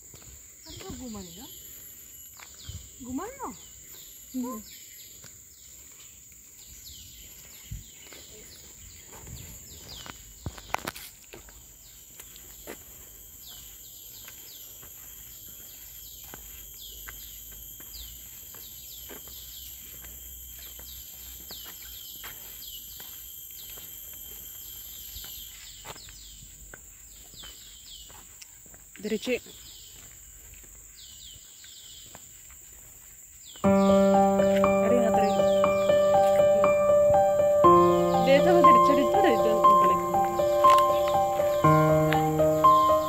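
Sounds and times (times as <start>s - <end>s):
high-pitched insect drone: 11.8s - 26.6s, 33.6s - 43.0s.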